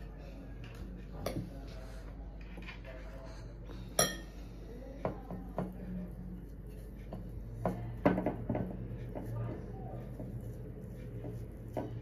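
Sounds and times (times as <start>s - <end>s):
metal spoon clinking on dishes: 4.0s - 4.3s.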